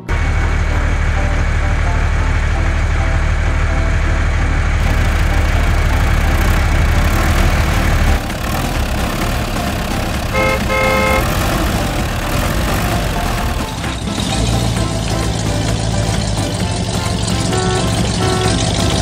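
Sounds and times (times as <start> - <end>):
truck engine rumble: 0.0 - 19.0
truck horn toots: 4.8 - 15.4, 16.7 - 19.0.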